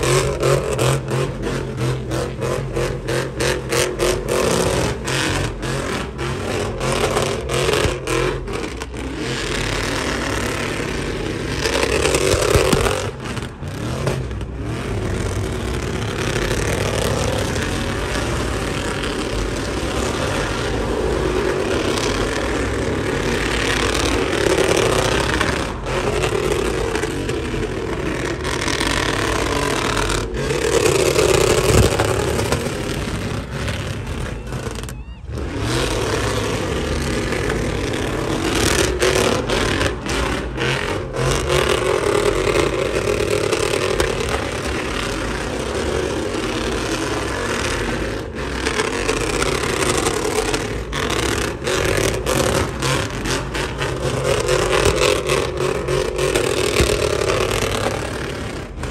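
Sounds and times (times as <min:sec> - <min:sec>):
engine at high revs: 0:00.0 - 0:58.9
tyres spinning on pavement: 0:00.0 - 0:58.9.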